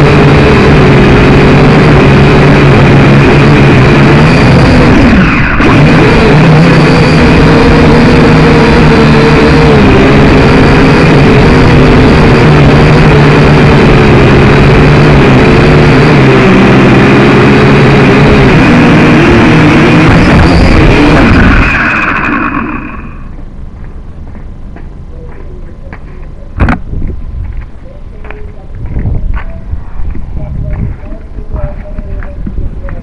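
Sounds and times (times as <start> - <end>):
drone motors and propellers whining: 0.0 - 23.6.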